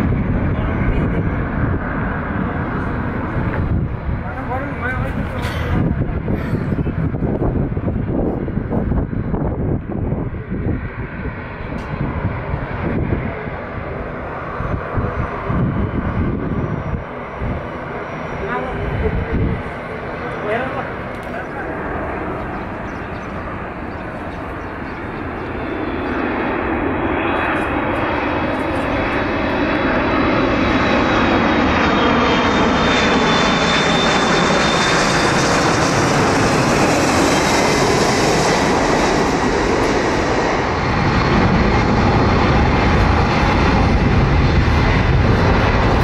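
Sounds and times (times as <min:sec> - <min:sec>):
high fan whine: 0:00.0 - 0:30.7
jet plane passing overhead: 0:00.0 - 0:46.0.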